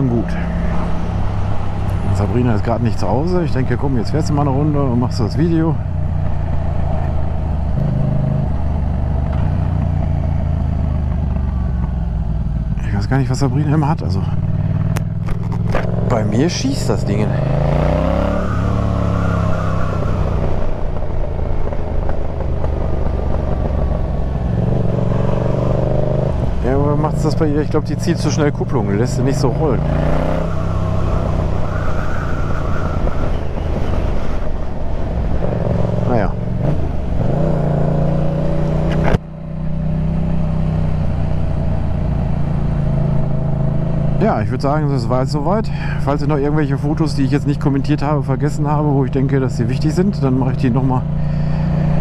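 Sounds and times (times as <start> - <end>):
motorcycle engine running: 5.8 - 17.6, 20.4 - 29.7.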